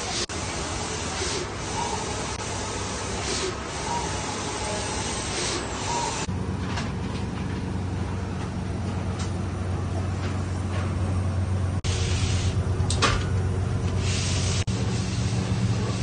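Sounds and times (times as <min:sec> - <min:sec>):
printer carriage sweeping hiss: 0:00.0 - 0:06.3, 0:11.9 - 0:12.7, 0:13.9 - 0:16.0
low machine hum: 0:00.0 - 0:16.0.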